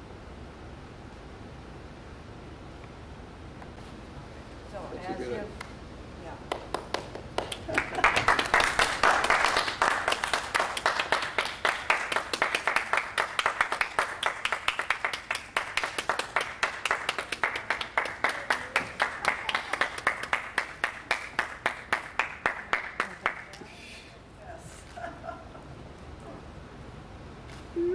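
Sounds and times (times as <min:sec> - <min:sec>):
audience clapping: 0:06.5 - 0:23.7.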